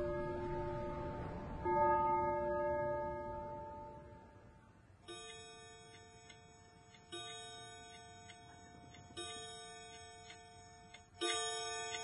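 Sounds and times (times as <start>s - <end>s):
faint clock ticks: 5.0s - 12.0s
clock chime striking: 5.1s - 12.0s.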